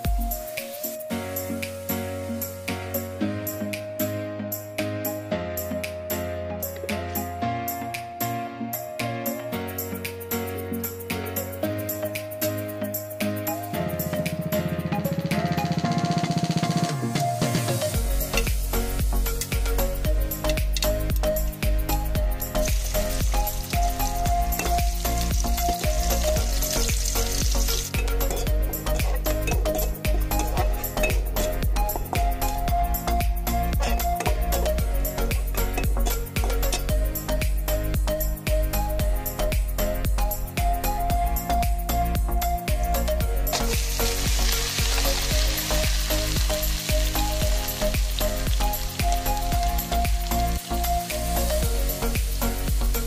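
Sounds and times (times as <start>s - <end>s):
background music with beat: 0.0s - 53.0s
garlic sizzling in hot oil: 22.5s - 32.7s, 43.6s - 53.0s
steel spoon stirring in pan: 27.6s - 32.1s.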